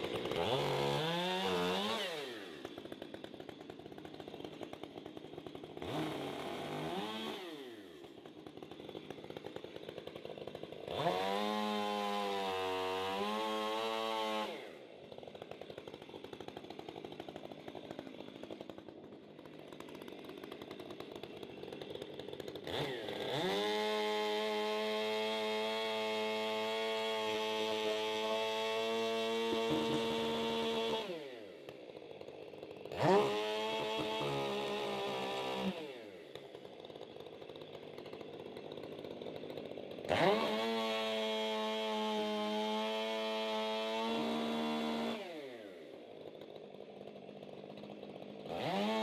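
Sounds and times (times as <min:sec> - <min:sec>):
chainsaw cutting log: 0:00.0 - 0:49.0
chainsaw revving and idling: 0:00.0 - 0:49.0.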